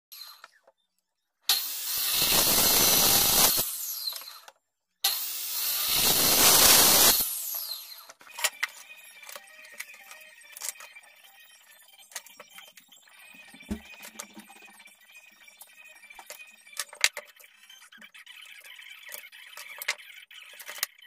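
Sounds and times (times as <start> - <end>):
mitre saw cutting wood: 1.5 - 4.4, 5.0 - 8.1
saw winding down whine: 1.5 - 4.4, 5.1 - 8.1.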